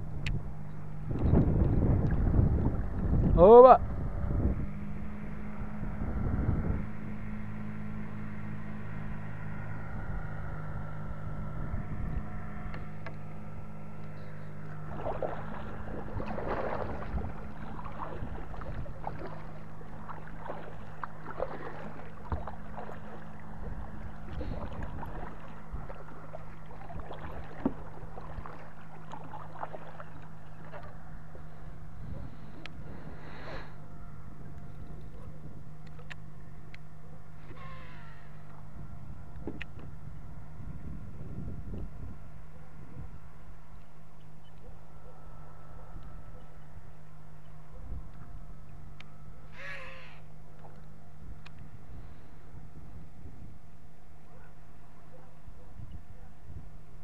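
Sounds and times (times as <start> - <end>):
low hum: 0.0 - 57.0
paddle splashing in water: 14.6 - 33.7.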